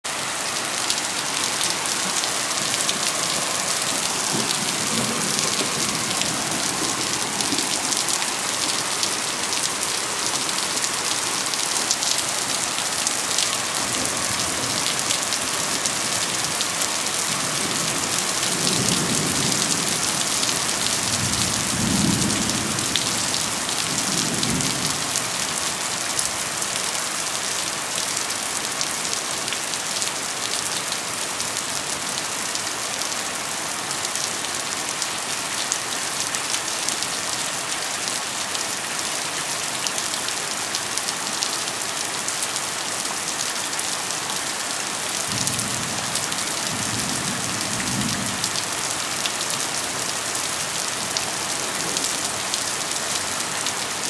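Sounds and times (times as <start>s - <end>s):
rain hissing: 0.1s - 25.7s
thunder rumbling: 2.2s - 8.8s, 17.3s - 25.1s.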